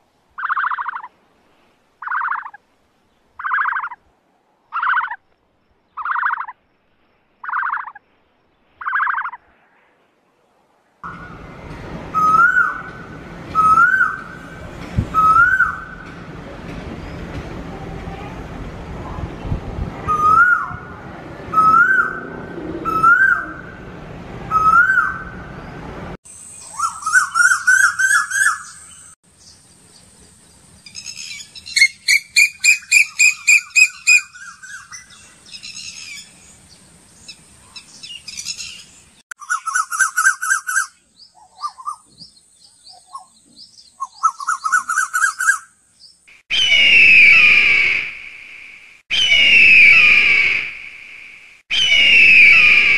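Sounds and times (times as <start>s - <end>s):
birds calling: 0.4s - 1.1s, 2.0s - 2.6s, 3.3s - 4.0s, 4.7s - 5.3s, 5.9s - 6.6s, 7.4s - 8.0s, 8.8s - 9.4s, 26.4s - 47.8s.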